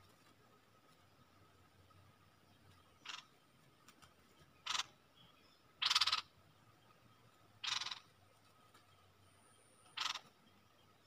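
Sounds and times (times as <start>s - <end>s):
bird calling: 2.8s - 3.4s, 4.6s - 6.4s, 7.6s - 8.2s, 9.5s - 11.0s.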